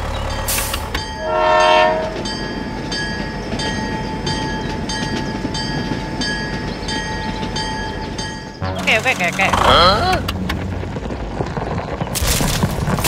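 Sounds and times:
toy train whining and clattering: 0.0s - 10.6s
toy train horn: 1.2s - 2.2s.

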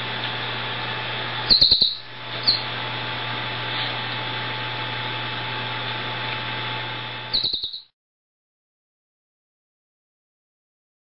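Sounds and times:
steady background hum: 0.0s - 7.9s
canary chirping: 1.5s - 2.7s, 7.3s - 7.9s.

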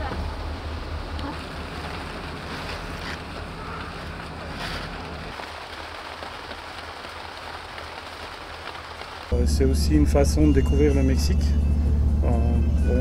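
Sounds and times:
low rumble: 9.3s - 13.0s.

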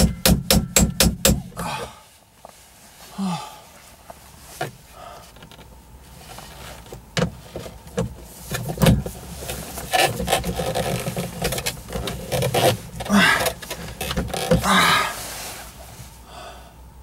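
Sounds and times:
plastic scraping and rustling: 5.4s - 15.7s.

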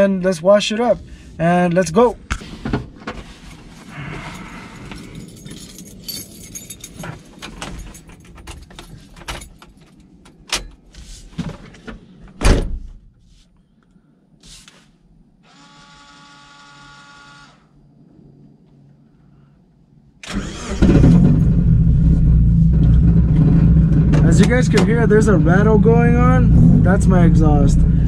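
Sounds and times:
clicks and knocks climbing into car: 6.7s - 13.0s.

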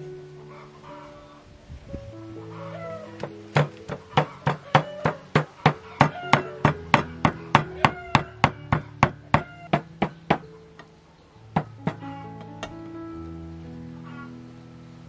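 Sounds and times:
cleaver chopping on wooden block: 3.2s - 10.4s.

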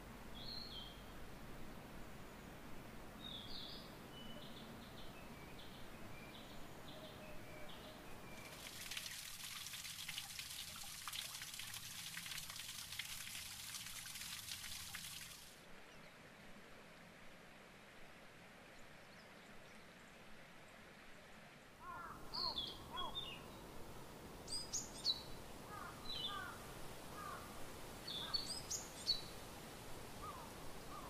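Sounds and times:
water trickling and splashing: 8.2s - 15.7s.

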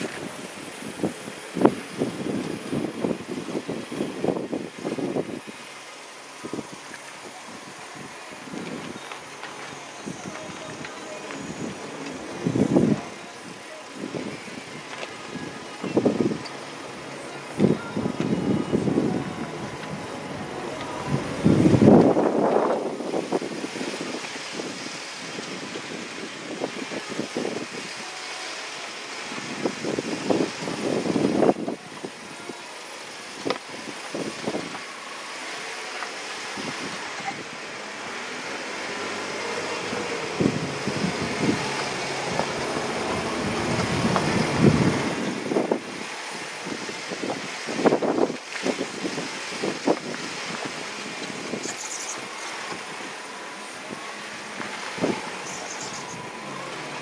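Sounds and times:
engine running at crawling speed: 33.4s - 45.8s.

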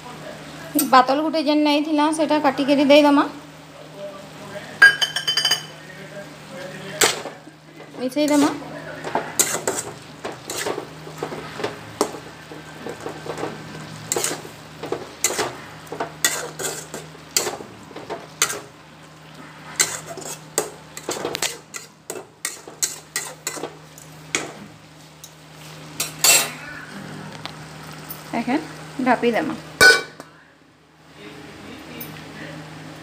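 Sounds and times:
light sizzle: 0.0s - 33.0s
metal spatula scraping a pan: 8.2s - 17.6s, 18.4s - 18.7s, 19.6s - 23.8s, 26.0s - 26.6s.

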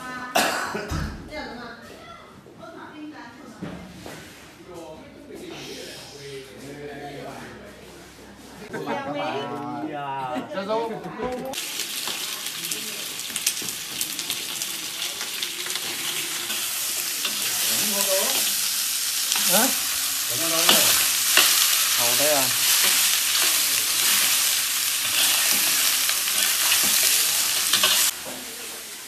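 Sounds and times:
meat sizzling in a wok: 11.5s - 29.0s
metal spatula stirring: 19.2s - 28.2s.

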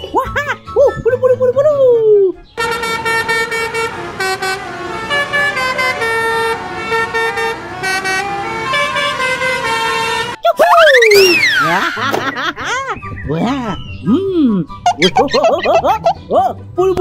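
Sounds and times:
multi-tone bus horn melody: 2.6s - 10.4s.

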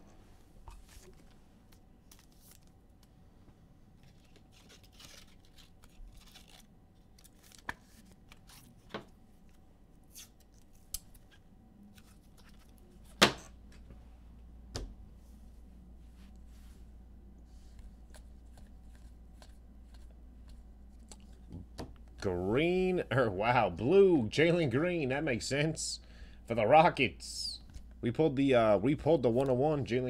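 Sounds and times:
cards and foil packs rustling: 0.7s - 3.1s, 3.9s - 9.6s.

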